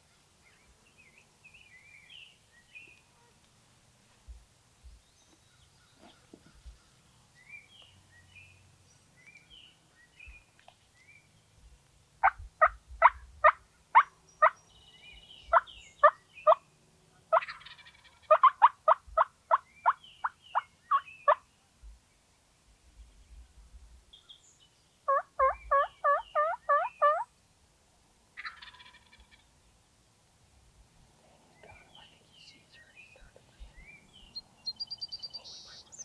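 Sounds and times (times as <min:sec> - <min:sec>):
faint songbird chirps: 0:00.0 - 0:03.5, 0:04.8 - 0:27.3, 0:31.5 - 0:36.0
wild turkey calling: 0:12.2 - 0:14.6, 0:15.5 - 0:16.6, 0:17.3 - 0:21.4, 0:25.1 - 0:27.3, 0:28.4 - 0:29.5.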